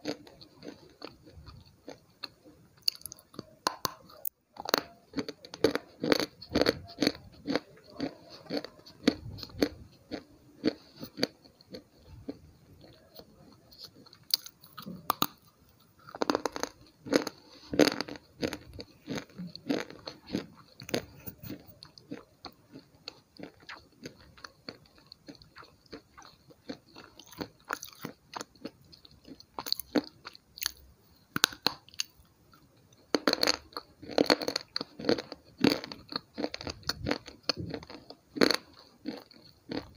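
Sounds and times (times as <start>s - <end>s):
chewing crunches and snaps: 0.0s - 39.9s.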